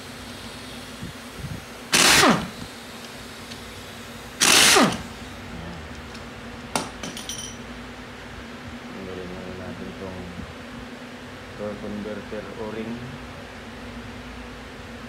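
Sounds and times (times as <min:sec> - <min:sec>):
pneumatic impact wrench: 0:00.0 - 0:05.4.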